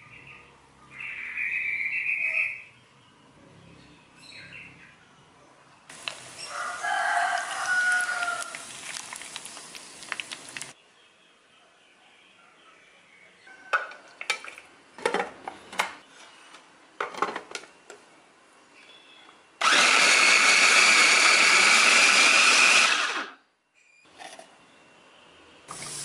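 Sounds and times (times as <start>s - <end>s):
deep-frying sizzle and pops: 5.9s - 10.8s.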